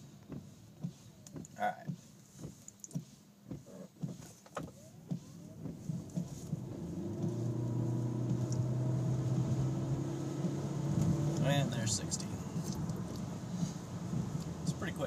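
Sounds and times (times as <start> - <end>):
light clicks and knocks: 0.2 - 7.5
electric car drivetrain hum: 4.5 - 15.0.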